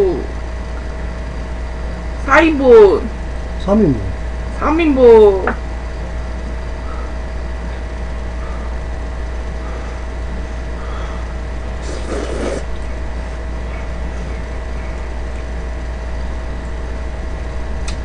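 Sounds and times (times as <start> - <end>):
steady low hum: 0.0 - 18.0
slurp of noodles: 11.8 - 12.7.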